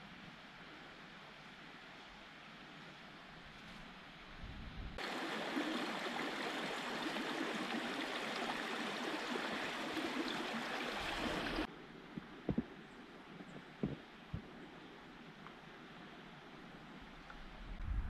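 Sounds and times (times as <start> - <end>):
faint wind hiss: 0.0 - 18.0
brook babbling: 5.0 - 17.2.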